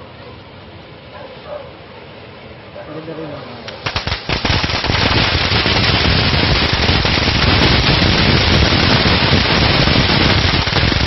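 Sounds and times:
firework hissing and crackling: 0:03.7 - 0:11.0.

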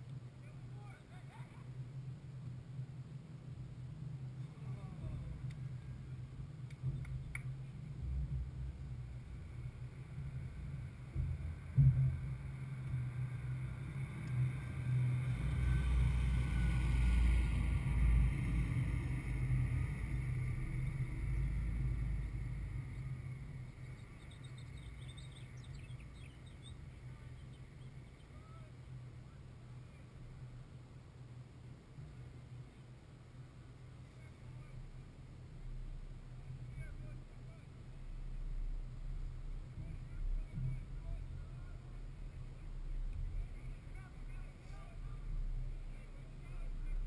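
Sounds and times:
low rumble: 0:01.7 - 0:32.8, 0:34.0 - 0:47.0
thump: 0:11.1 - 0:12.6.

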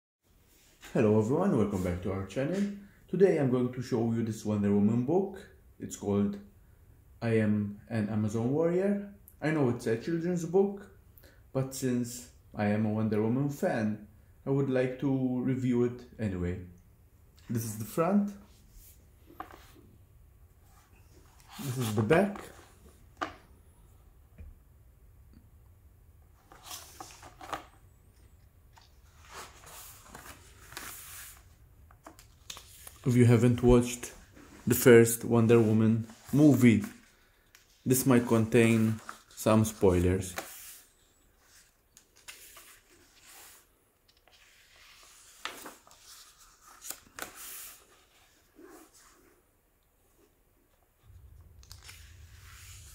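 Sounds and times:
book cover rustling: 0:17.5 - 0:19.8, 0:20.7 - 0:23.5, 0:26.3 - 0:49.4, 0:51.6 - 0:52.9
paper pages rustling: 0:17.5 - 0:19.8, 0:20.7 - 0:23.4, 0:26.3 - 0:49.2, 0:51.6 - 0:52.9.

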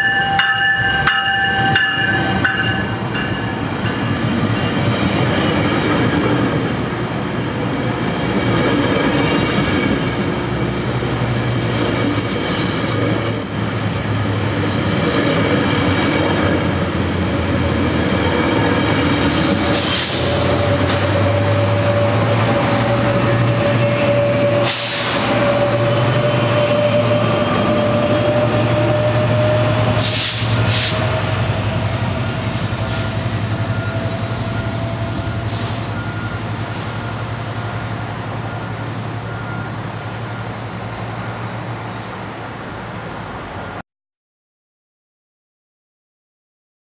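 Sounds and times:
diesel locomotive running: 0:00.0 - 0:43.8
brief hisses: 0:30.0 - 0:31.1, 0:35.4 - 0:36.0.

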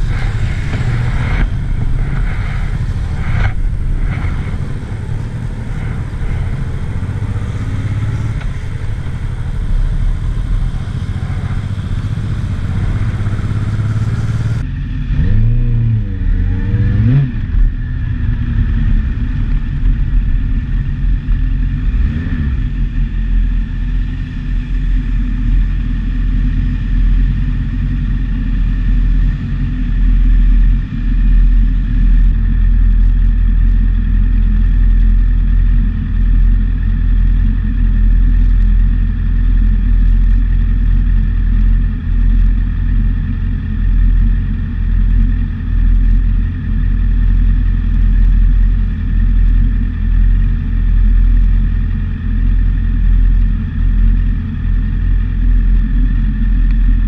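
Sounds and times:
motorcycle engine revving: 0:00.0 - 0:19.9
wind and road noise: 0:00.0 - 0:57.0.

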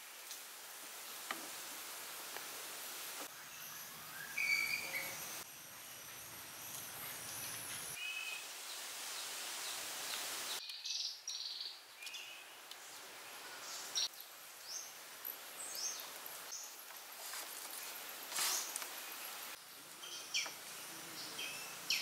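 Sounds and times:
outdoor background hiss: 0:00.0 - 0:22.0
high-pitched chirping calls: 0:04.2 - 0:05.4.

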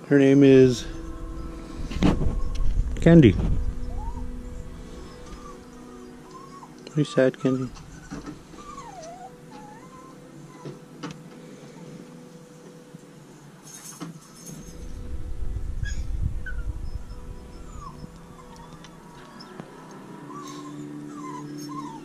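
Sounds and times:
handling noise rumble: 0:00.0 - 0:06.4, 0:14.5 - 0:19.3
puppy whimpering: 0:03.6 - 0:10.8, 0:15.8 - 0:22.0.

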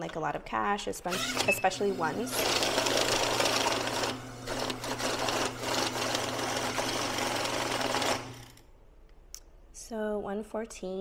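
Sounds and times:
bill counter motor humming: 0:01.1 - 0:08.6.

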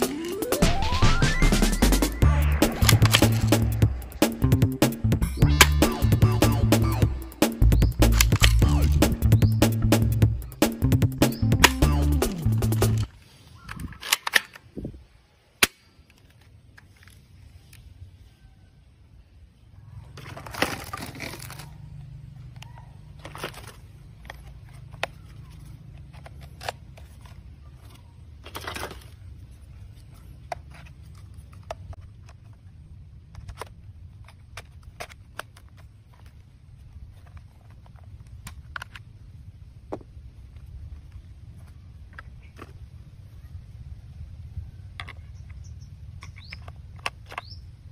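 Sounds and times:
steady low hum: 0:00.0 - 0:13.2
plastic rustling and clatter: 0:20.1 - 0:21.9, 0:23.2 - 0:32.7.

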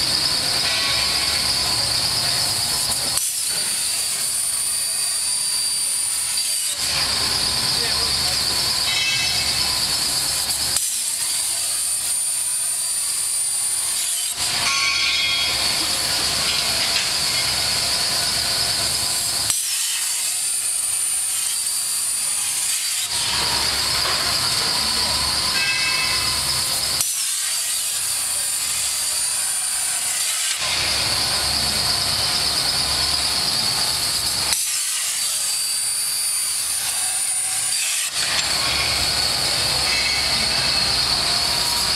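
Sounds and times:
plasma torch cutting steel: 0:00.0 - 0:41.9.

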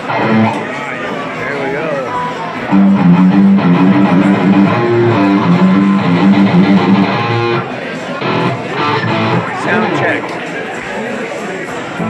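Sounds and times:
loud electric guitar riff: 0:00.0 - 0:00.7, 0:02.6 - 0:10.4.

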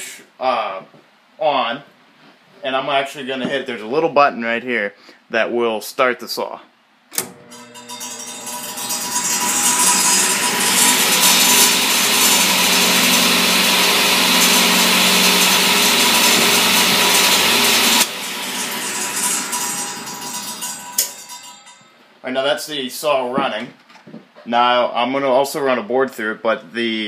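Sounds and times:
table saw motor spinning up: 0:07.2 - 0:21.0.

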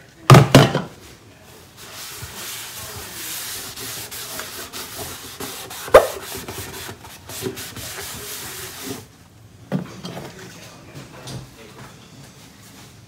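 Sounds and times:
cloth rubbing on plastic: 0:01.6 - 0:09.1.

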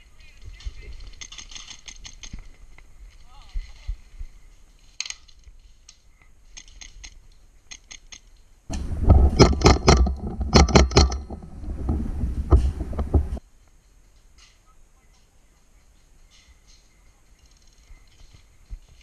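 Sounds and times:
low rumble of camera handling: 0:08.7 - 0:13.4.

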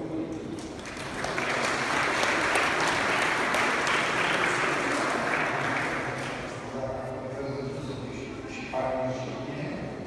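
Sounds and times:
audience applauding: 0:00.6 - 0:06.5.

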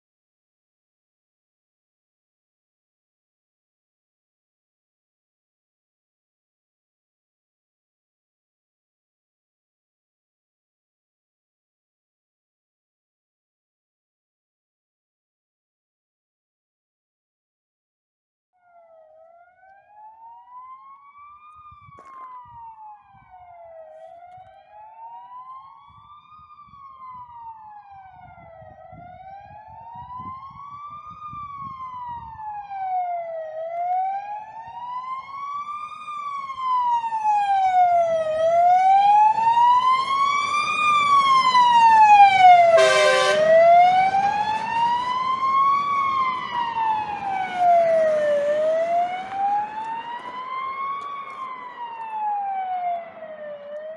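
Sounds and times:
fire engine siren wailing: 0:18.6 - 0:53.9
short horn blast: 0:42.7 - 0:43.5.

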